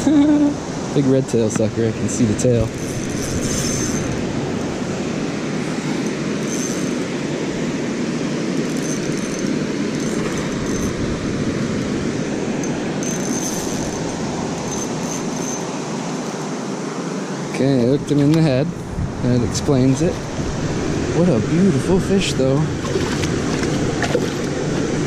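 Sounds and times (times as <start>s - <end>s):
water rushing through spillway: 20.1s - 25.0s.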